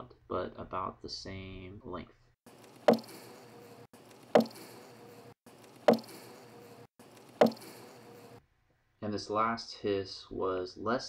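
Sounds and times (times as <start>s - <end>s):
bee colony hissing: 2.5s - 8.4s
knock on beehive: 2.9s - 3.2s, 4.4s - 4.6s, 5.9s - 6.2s, 7.4s - 7.8s.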